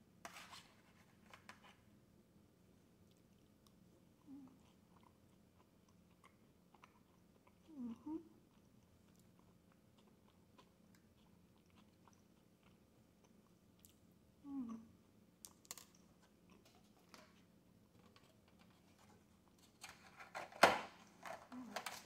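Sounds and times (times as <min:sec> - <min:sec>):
chewing soft food: 0:02.9 - 0:19.7
low humming voice: 0:07.7 - 0:08.4, 0:14.4 - 0:15.0.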